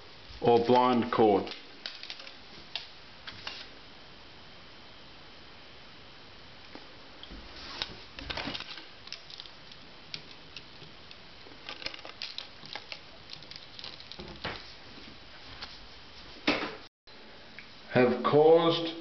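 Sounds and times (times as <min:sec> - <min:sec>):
handling clicks and rustles: 0:00.3 - 0:03.7, 0:06.7 - 0:15.8.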